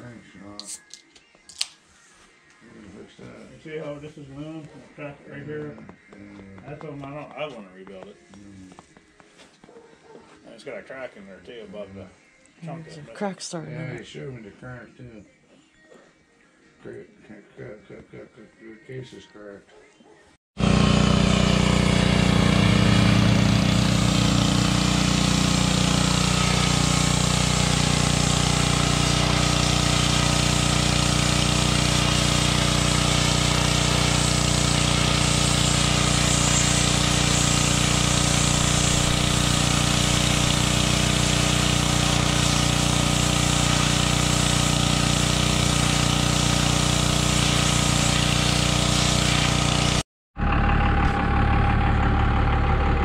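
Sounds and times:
engine idling: 20.6 - 53.0.

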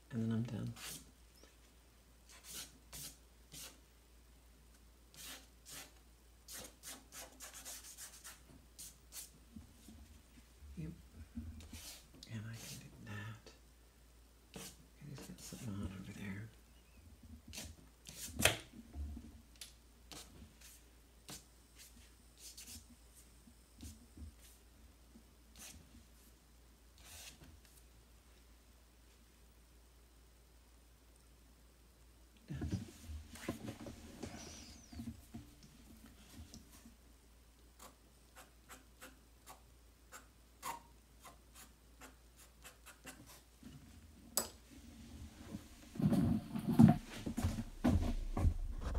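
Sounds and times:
drawing tool scratching on paper: 6.5 - 8.4.

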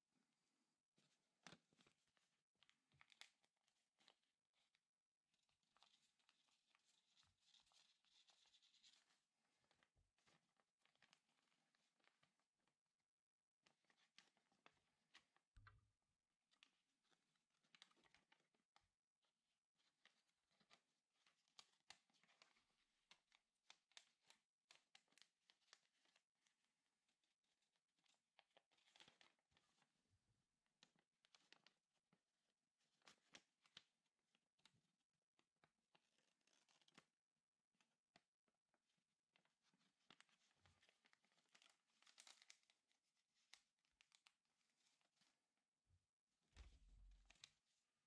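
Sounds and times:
paper being folded and creased: 0.4 - 12.8, 13.6 - 15.5, 16.5 - 18.9, 19.8 - 34.8, 35.4 - 37.2, 38.8 - 45.6, 46.6 - 48.0
soft crackles and ticks: 1.0 - 4.8, 19.8 - 26.4, 35.4 - 37.2, 37.8 - 45.4, 46.6 - 47.8.

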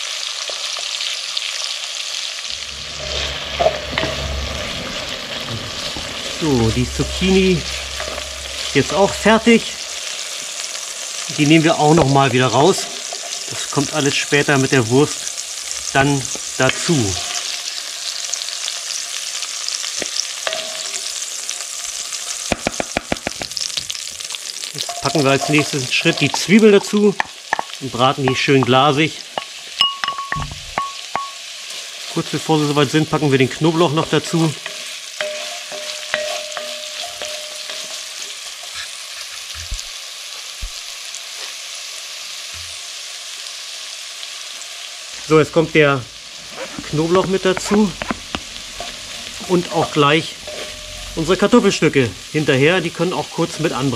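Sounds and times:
vegetables sizzling in hot oil: 0.0 - 53.9
sharp knocks: 22.5 - 23.6
wooden spatula stirring: 24.8 - 28.8, 34.0 - 39.8, 46.6 - 51.0.

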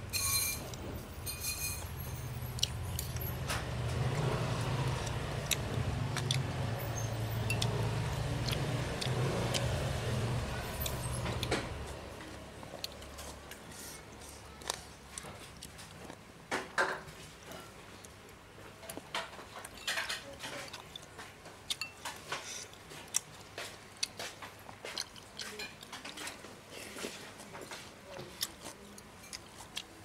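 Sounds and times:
cutlery clinking on ceramic bowl: 0.1 - 2.4, 19.2 - 20.7, 21.8 - 22.4
engine humming: 2.1 - 13.6.

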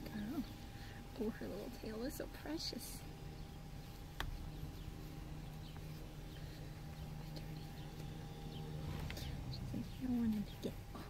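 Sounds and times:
car cabin hum: 3.9 - 11.0.

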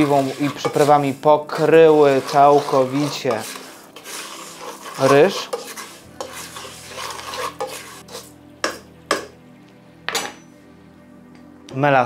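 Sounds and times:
spatula scraping rice in pot: 0.0 - 9.3
frying sizzle: 3.1 - 8.9.

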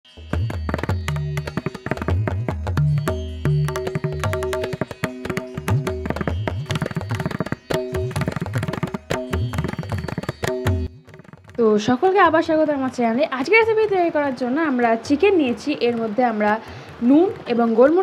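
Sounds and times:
hand-drum music: 0.2 - 18.0.

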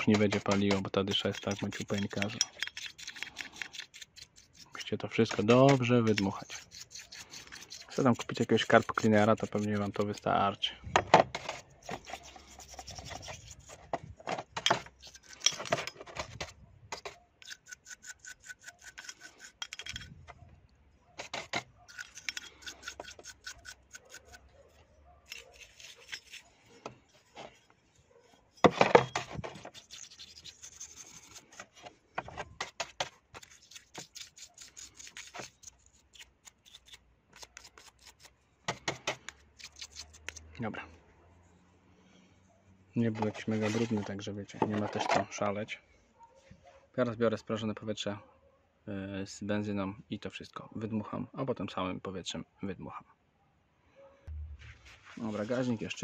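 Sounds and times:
brush scrubbing metal: 0.0 - 10.7, 11.4 - 13.9, 14.8 - 20.1, 21.2 - 24.5, 25.3 - 31.9, 32.6 - 38.3.

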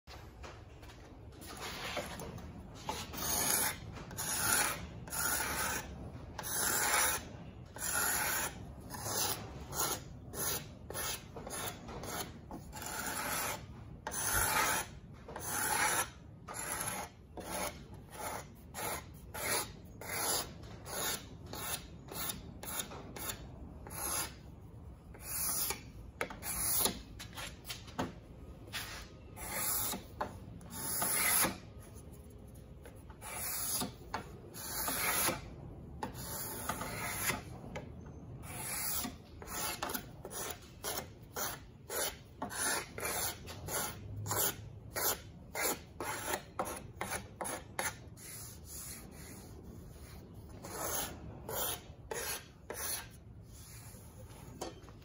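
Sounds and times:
card scraper scraping wood: 2.9 - 7.2, 7.8 - 24.4, 28.8 - 31.7, 33.2 - 35.5, 36.1 - 37.5, 38.4 - 54.0.

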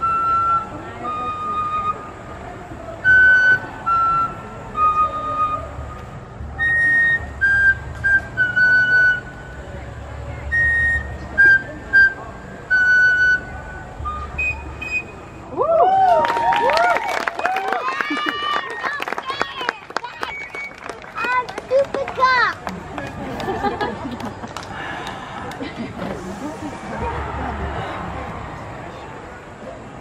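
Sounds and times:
flute-like wind instrument tune: 0.0 - 16.4.

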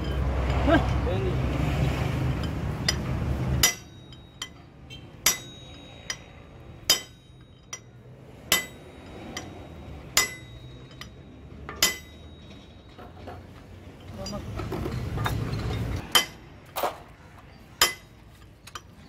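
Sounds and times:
hammer striking metal: 2.2 - 13.4, 14.0 - 17.0, 17.7 - 19.0.

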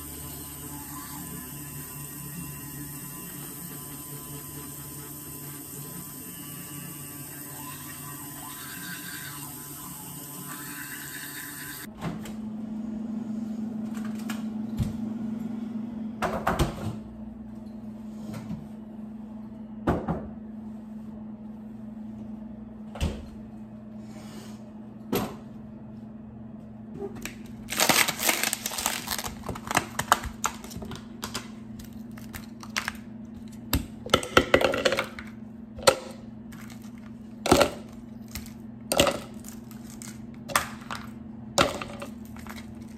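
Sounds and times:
electric toothbrush buzzing: 0.0 - 11.9
ice cubes cracking and clattering: 27.2 - 33.1, 34.1 - 42.9.

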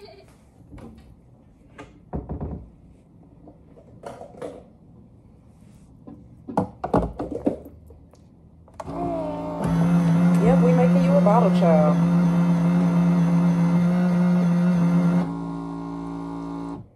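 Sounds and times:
items thunking on counter: 6.4 - 7.7.

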